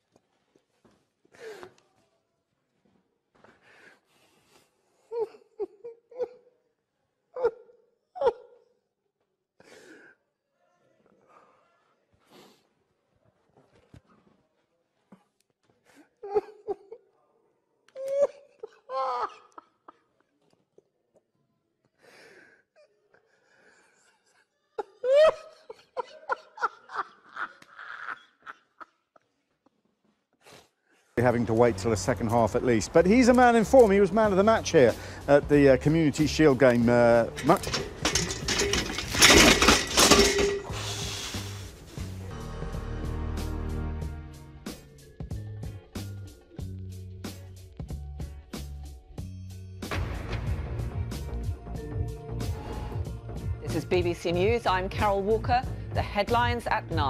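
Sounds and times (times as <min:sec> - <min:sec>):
man laughing: 0:24.0 - 0:29.3.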